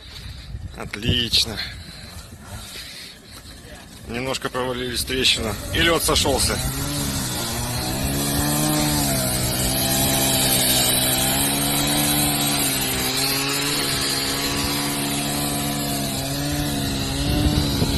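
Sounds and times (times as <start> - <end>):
vehicle engine running under load: 5.4 - 17.9.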